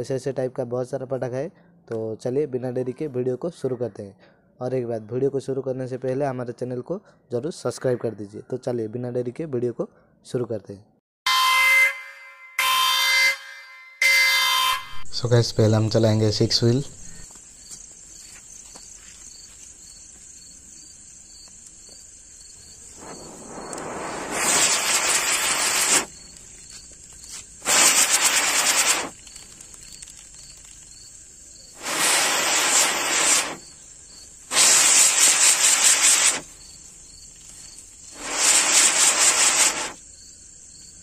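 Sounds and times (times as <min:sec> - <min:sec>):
firecracker spark rushes: 0:22.8 - 0:40.1.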